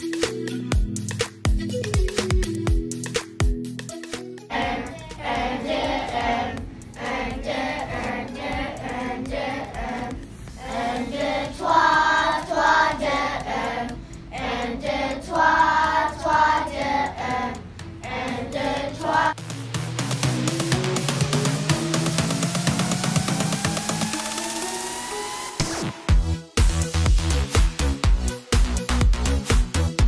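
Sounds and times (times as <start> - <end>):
children singing together: 4.5 - 19.4.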